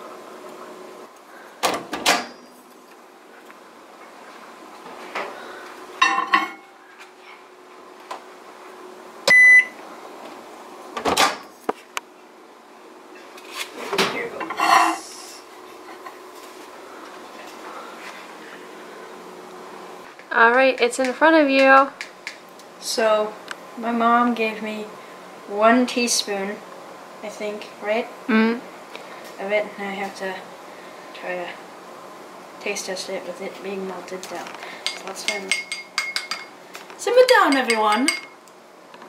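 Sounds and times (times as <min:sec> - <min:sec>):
microwave beep: 0:09.2 - 0:09.8.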